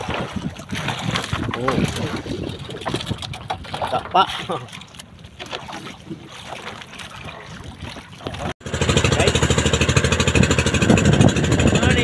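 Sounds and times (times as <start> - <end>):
faint water sounds: 0.0 - 10.8
boat engine chugging: 8.5 - 12.0.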